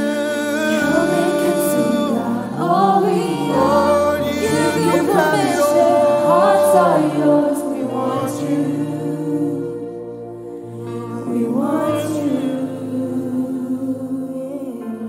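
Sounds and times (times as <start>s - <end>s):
man singing into microphone: 0.0s - 8.4s
group voices singing: 0.0s - 15.0s
sustained accompaniment: 0.0s - 15.0s.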